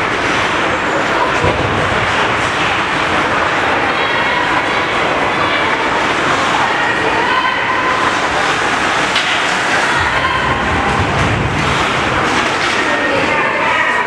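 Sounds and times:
arena crowd din: 0:00.0 - 0:14.0
low rumble: 0:10.0 - 0:12.6.

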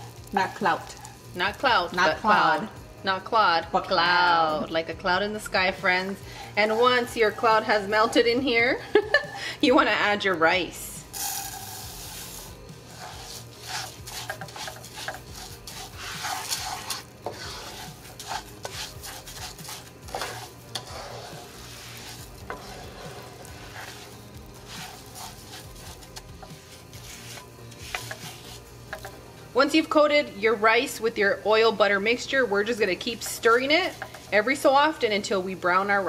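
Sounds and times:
light sizzle: 0:00.0 - 0:36.0
rice scraping against pan: 0:06.0 - 0:08.4, 0:11.1 - 0:29.2, 0:31.0 - 0:36.0.

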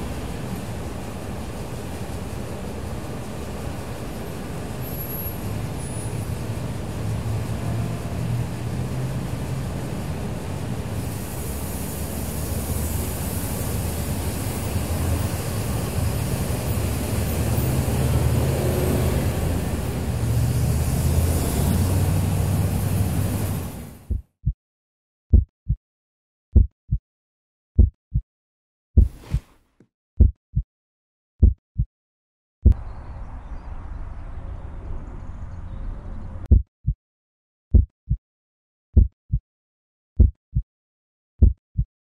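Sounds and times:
traffic passing: 0:00.0 - 0:24.1, 0:32.8 - 0:36.5
motorcycle passing: 0:16.5 - 0:23.8
heartbeat thumps: 0:24.1 - 0:24.6, 0:25.3 - 0:25.8, 0:26.5 - 0:27.0, 0:27.8 - 0:28.2, 0:29.0 - 0:29.5, 0:30.2 - 0:30.7, 0:31.4 - 0:31.9, 0:36.5 - 0:37.0, 0:37.7 - 0:38.2, 0:39.0 - 0:39.4, 0:40.2 - 0:40.7, 0:41.4 - 0:41.9.

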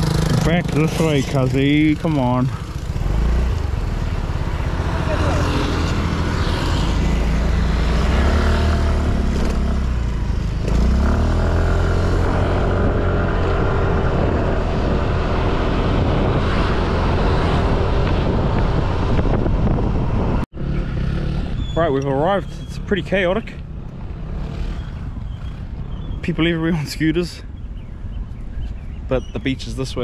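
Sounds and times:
scooter engine running: 0:00.0 - 0:15.0
wind rushing: 0:12.2 - 0:20.4.

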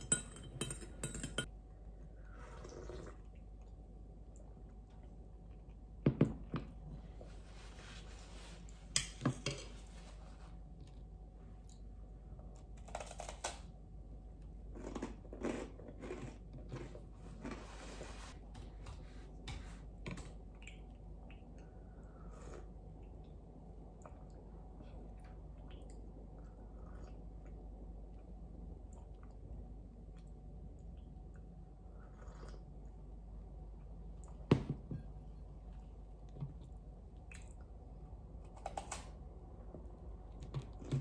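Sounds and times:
spoon clinking in ceramic cup: 0:00.0 - 0:01.5.

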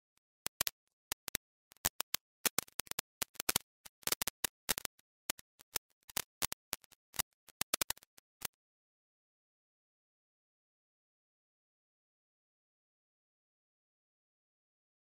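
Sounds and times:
irregular sharp clicks: 0:00.0 - 0:08.5.

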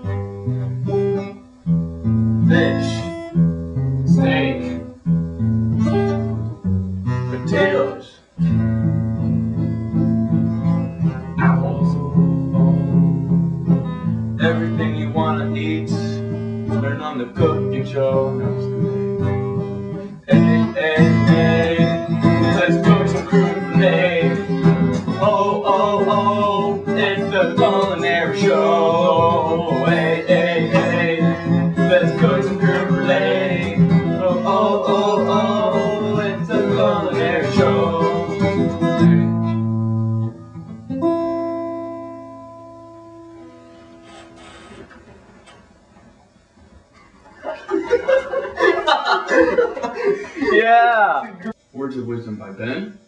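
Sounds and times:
acoustic guitar music: 0:00.0 - 0:53.0.

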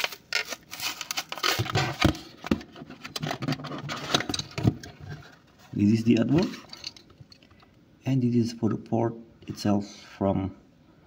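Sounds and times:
paper tearing: 0:00.0 - 0:01.9
plastic crackling and crinkling: 0:00.0 - 0:02.4.

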